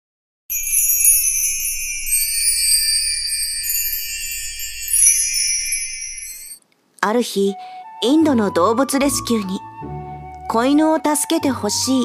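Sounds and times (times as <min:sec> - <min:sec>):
jingle bells and chimes shimmering: 0:00.5 - 0:06.6.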